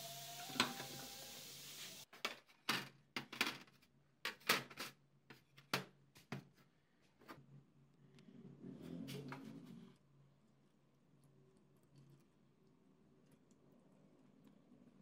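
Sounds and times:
steam hissing: 0:00.0 - 0:02.0.

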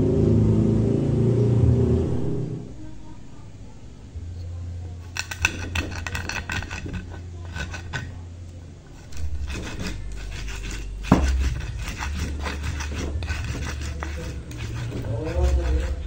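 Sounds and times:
pestle grinding in mortar: 0:05.0 - 0:08.2, 0:08.9 - 0:16.0
pestle knock: 0:09.1 - 0:16.0.

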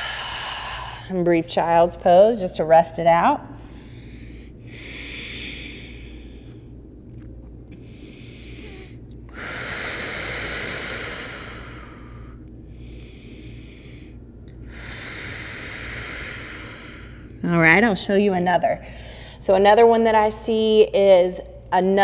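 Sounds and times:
woman breathing deeply: 0:00.0 - 0:01.2, 0:03.5 - 0:06.9, 0:07.8 - 0:17.4, 0:18.8 - 0:19.4.

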